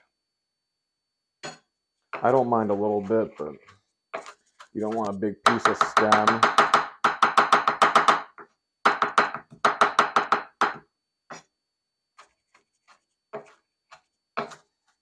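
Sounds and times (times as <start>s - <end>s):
knife chopping on cutting board: 2.2s - 8.2s, 12.2s - 14.7s.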